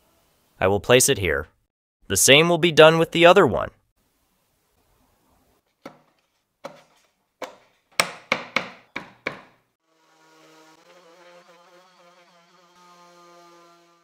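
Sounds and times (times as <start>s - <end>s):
sharp wooden knocks: 5.8s - 6.8s, 7.4s - 9.6s
orbital sander humming: 9.8s - 14.0s.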